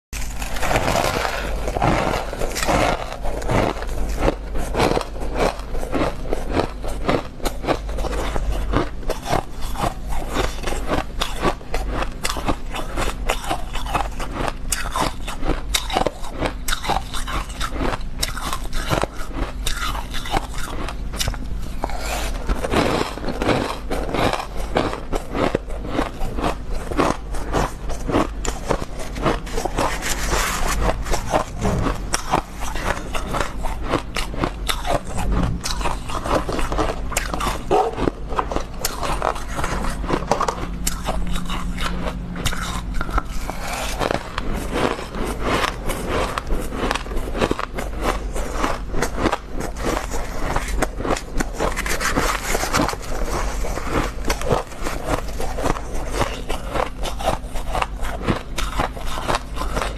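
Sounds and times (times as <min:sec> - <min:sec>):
metal spoon scraping frost: 0:00.2 - 0:07.1, 0:26.0 - 0:48.8
crunching frost in mouth: 0:00.2 - 0:59.9.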